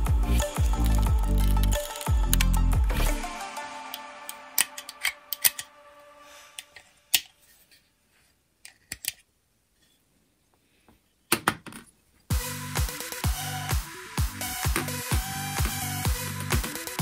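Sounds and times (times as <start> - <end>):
clicks of metal and plastic parts: 8.6 - 9.2.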